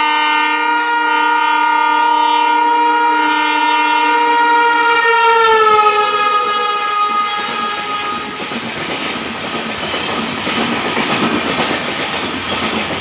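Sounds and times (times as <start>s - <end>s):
train horn: 0.0s - 8.6s
wheels rumbling on rail: 1.3s - 13.0s.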